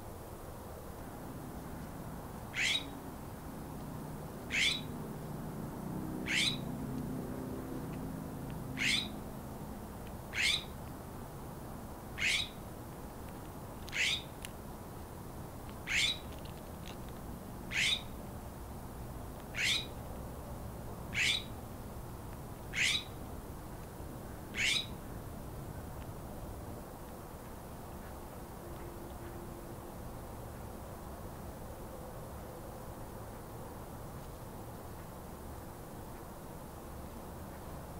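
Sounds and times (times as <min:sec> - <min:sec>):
bird sharp high call: 0:02.6 - 0:02.9, 0:04.5 - 0:04.9, 0:06.3 - 0:06.6, 0:08.8 - 0:09.2, 0:10.4 - 0:10.7, 0:12.2 - 0:12.6, 0:14.0 - 0:14.3, 0:15.9 - 0:16.2, 0:17.7 - 0:18.0, 0:19.6 - 0:19.9, 0:21.2 - 0:21.5, 0:22.8 - 0:23.1, 0:24.6 - 0:24.9.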